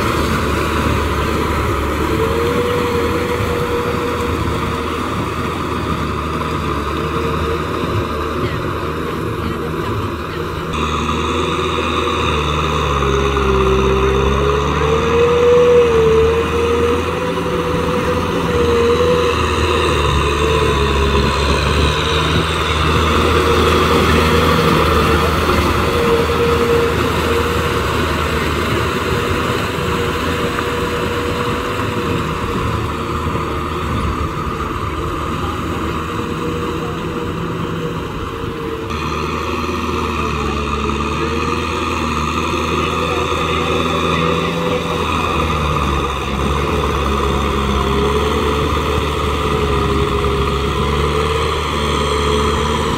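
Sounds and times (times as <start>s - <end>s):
tractor diesel engine under load: 0.0s - 52.9s.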